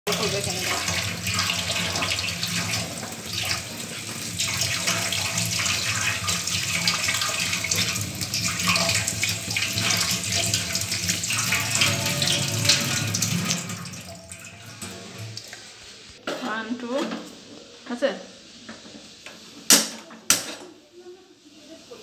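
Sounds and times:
tap water running into sink: 0.1s - 15.9s
vegetables rinsed by hand: 0.1s - 22.0s.

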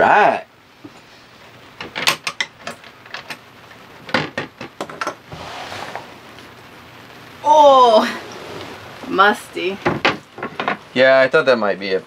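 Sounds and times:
soft rubbing sound: 5.3s - 6.4s
wooden boards knocking: 9.8s - 10.8s.

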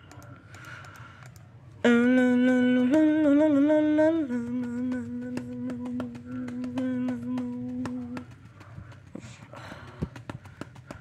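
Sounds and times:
quick clicks: 0.0s - 1.5s
person humming a long note: 1.9s - 8.2s.

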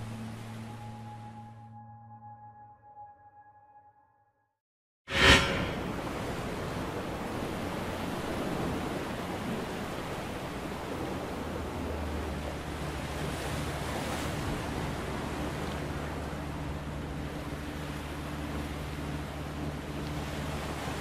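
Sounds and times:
low steady hum: 0.0s - 3.4s
wind and surf rushing: 5.1s - 21.0s.

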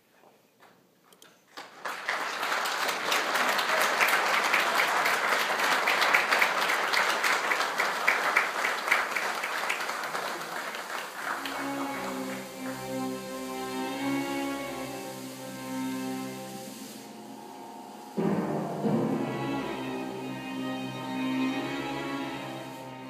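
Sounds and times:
audience applauding: 1.5s - 15.8s.

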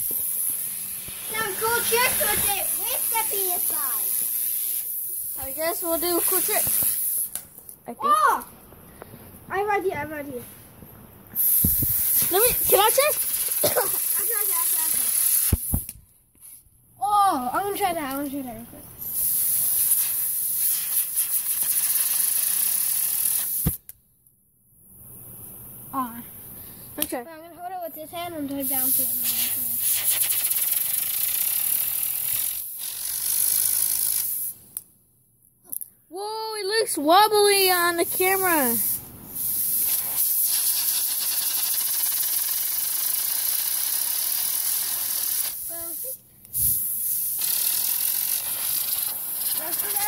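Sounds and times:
compressed air hissing: 0.0s - 7.4s, 11.3s - 15.9s, 19.0s - 23.8s, 28.6s - 34.6s, 38.1s - 50.0s.

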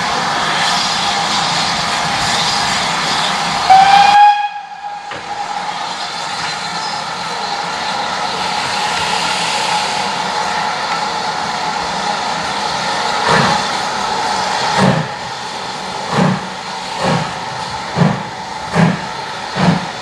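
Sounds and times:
steam hissing: 0.0s - 20.0s
steam locomotive whistle: 3.6s - 5.2s.

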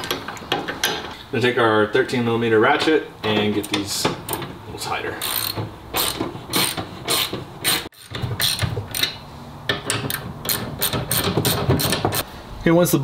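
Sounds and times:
socket ratchet clicking: 5.2s - 12.2s.

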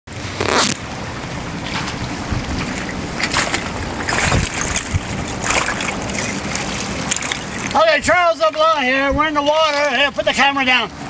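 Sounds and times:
river water washing against shore: 0.1s - 11.0s
wind on microphone: 1.8s - 8.2s.

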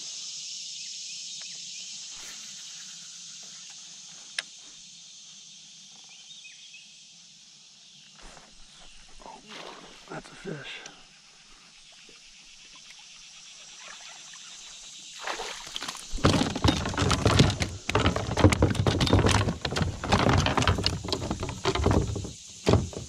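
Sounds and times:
fish thrashing on plastic deck: 15.2s - 23.0s.

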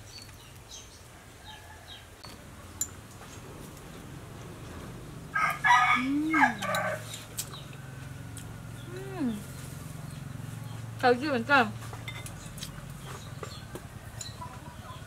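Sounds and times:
rooster crowing: 5.3s - 7.1s.

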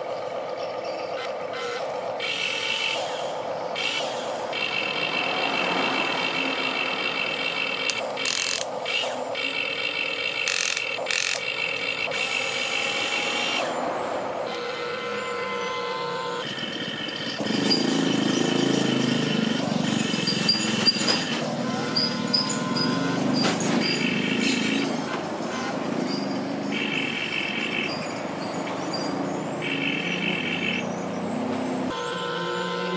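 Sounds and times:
toy electric motors whining: 1.1s - 13.8s, 14.5s - 25.2s
sharp clicks: 7.3s - 9.1s, 10.4s - 11.9s.

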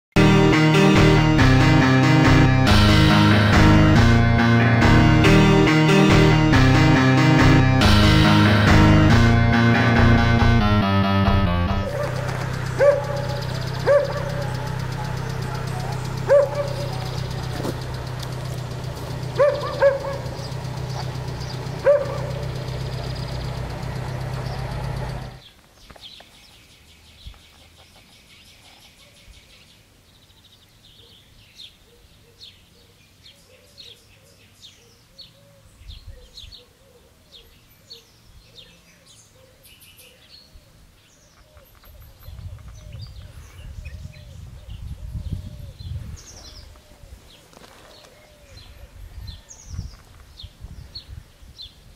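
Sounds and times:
engine hum: 0.2s - 25.5s
small birds chirping: 11.9s - 51.9s.

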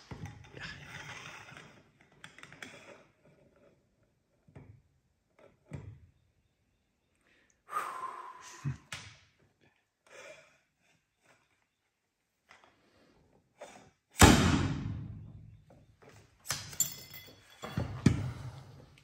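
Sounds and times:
small metal parts tapping: 16.5s - 17.8s.

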